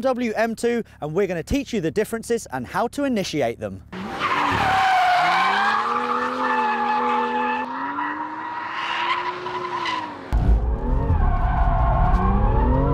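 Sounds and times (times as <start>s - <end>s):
car engine revving: 3.9s - 12.9s
tyres squealing: 4.0s - 10.2s.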